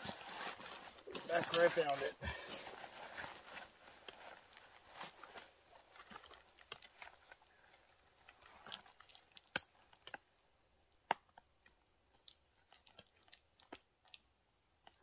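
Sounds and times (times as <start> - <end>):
gear clicks and crinkles: 0.0 - 10.3.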